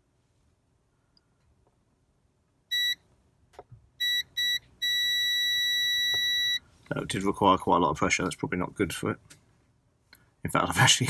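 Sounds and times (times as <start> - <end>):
multimeter continuity beeps: 2.7 - 3.0, 4.0 - 6.6.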